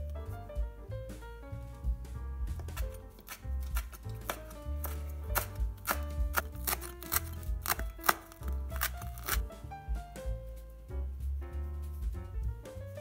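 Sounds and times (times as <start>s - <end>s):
background music: 0.0s - 13.0s
knife chopping on wooden board: 2.5s - 9.5s.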